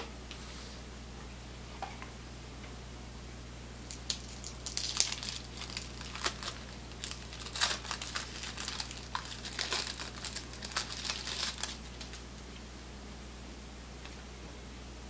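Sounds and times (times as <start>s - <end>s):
paper wrapper crinkling and tearing: 3.9s - 12.3s.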